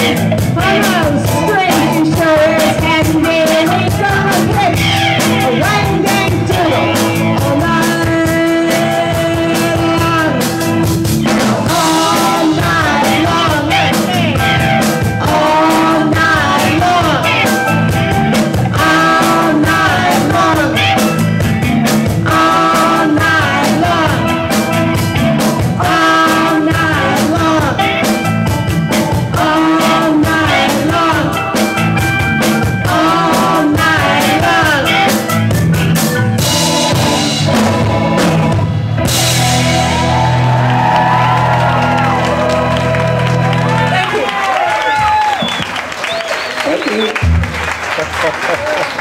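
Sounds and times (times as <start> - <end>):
woman singing: 0.0 - 17.7, 18.7 - 21.1, 22.2 - 24.7, 25.7 - 28.0, 29.3 - 31.6, 32.8 - 35.2
drum kit: 0.0 - 45.9, 47.1 - 47.9
bass: 0.0 - 49.0
electric guitars: 0.0 - 49.0.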